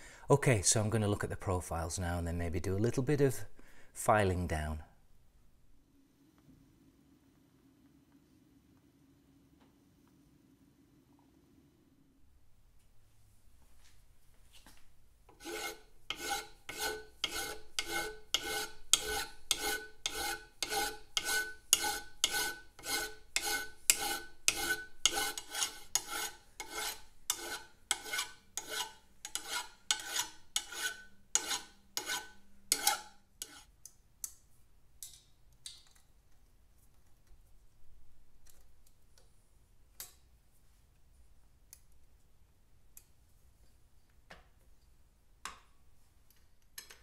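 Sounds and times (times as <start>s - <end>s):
hand file rasping on metal: 15.3s - 33.7s.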